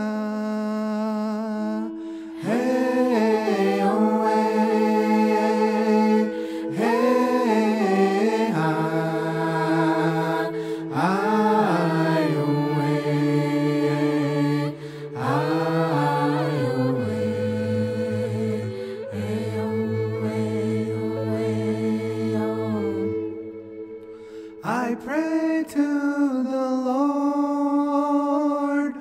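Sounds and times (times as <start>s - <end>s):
wordless chanted vocals: 0.0s - 29.0s
low held note: 14.5s - 24.8s.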